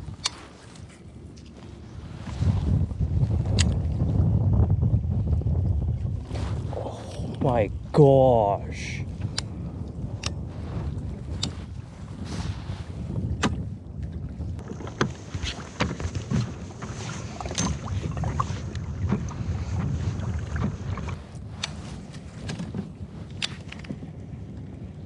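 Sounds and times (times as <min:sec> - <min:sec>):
wind rumble on microphone: 0:00.0 - 0:25.0
gear knocking against kayak: 0:14.6 - 0:24.2.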